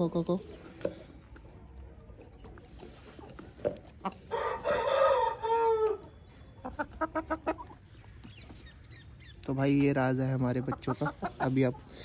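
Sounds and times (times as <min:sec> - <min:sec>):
chicken clucking: 0:00.1 - 0:12.0
rooster crowing: 0:04.3 - 0:06.0.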